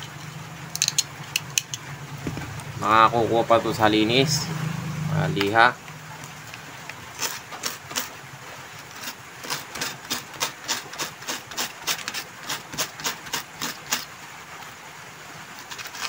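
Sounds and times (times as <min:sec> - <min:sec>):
small tool scraping metal: 0:07.2 - 0:08.1, 0:08.9 - 0:14.1, 0:15.6 - 0:16.0.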